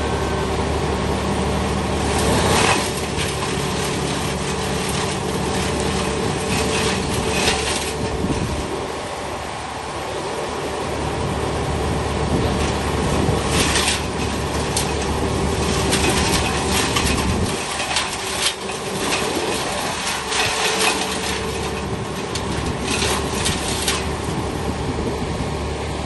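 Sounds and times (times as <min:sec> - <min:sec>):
wood chipper running: 0:00.0 - 0:26.0
branches crunching in chipper: 0:00.9 - 0:09.1, 0:11.2 - 0:25.7.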